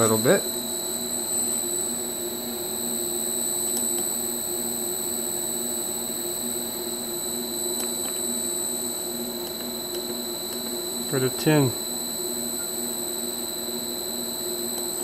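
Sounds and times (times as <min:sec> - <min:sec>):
high-pitched drive whine: 0:00.0 - 0:15.0.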